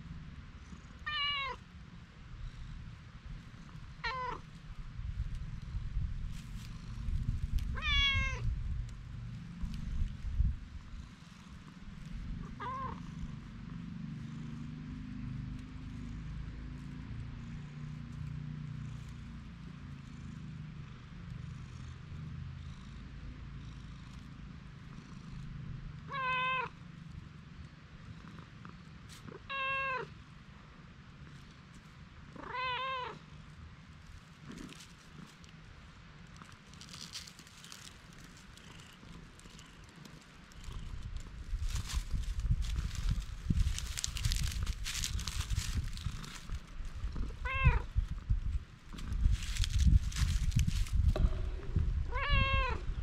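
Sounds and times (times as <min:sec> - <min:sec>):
cat meowing: 0:01.0 - 0:01.6, 0:04.0 - 0:04.4, 0:07.7 - 0:08.5, 0:12.4 - 0:13.1, 0:26.1 - 0:26.8, 0:29.4 - 0:30.1, 0:32.4 - 0:33.2, 0:47.2 - 0:47.9, 0:52.1 - 0:52.9
low rumble: 0:36.3 - 0:53.0.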